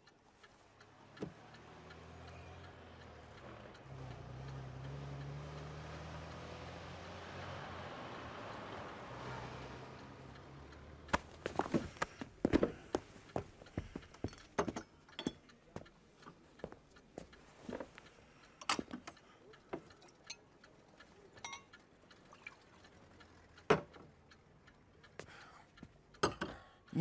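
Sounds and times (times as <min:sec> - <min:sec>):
faint clicks and knocks: 0:10.7 - 0:26.7.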